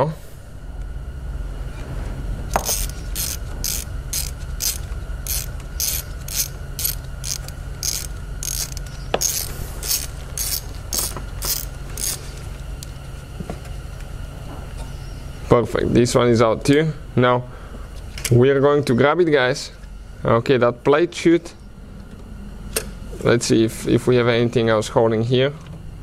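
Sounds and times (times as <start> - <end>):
hand ratchet clicking: 2.6 - 12.3.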